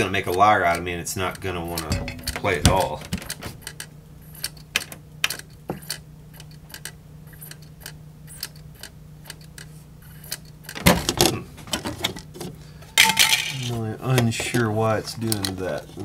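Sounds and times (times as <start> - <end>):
low steady hum: 0.0 - 16.0
cd mechanism clicking: 15.2 - 15.7.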